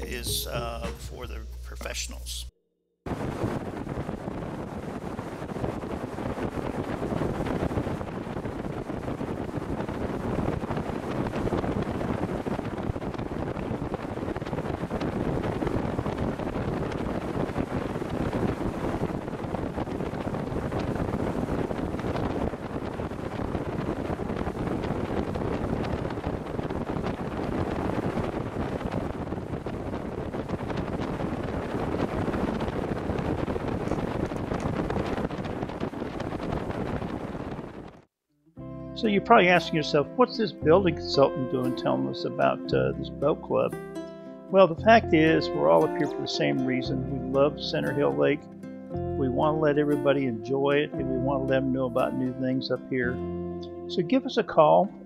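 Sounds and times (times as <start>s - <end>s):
water noise: 3.1s - 38.1s
wind rushing over microphone: 3.1s - 38.1s.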